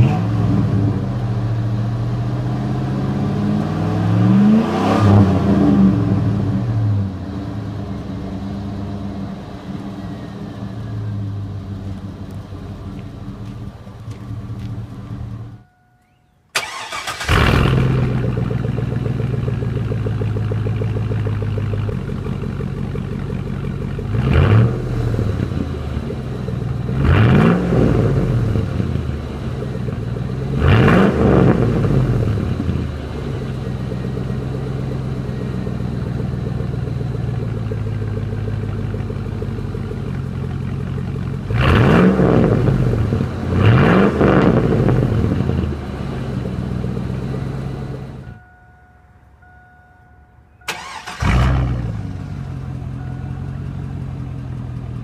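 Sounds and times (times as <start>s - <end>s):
truck engine idling and revving: 0.0s - 55.0s.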